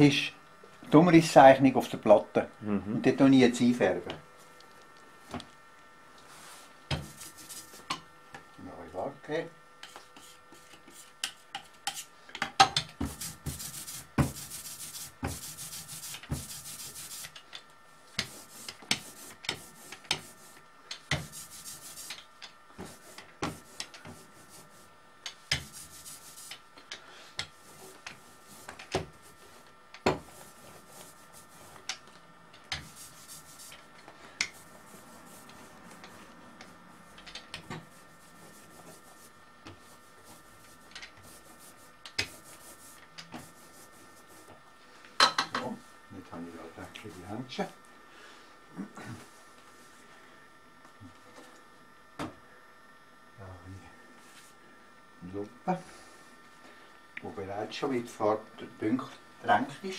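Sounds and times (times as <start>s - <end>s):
scratchy rubbing strokes: 6.3s - 7.9s, 13.1s - 17.3s, 18.2s - 20.6s, 21.2s - 24.9s, 25.6s - 26.6s, 27.6s - 31.8s, 32.8s - 33.9s, 34.5s - 37.1s, 37.8s - 44.5s.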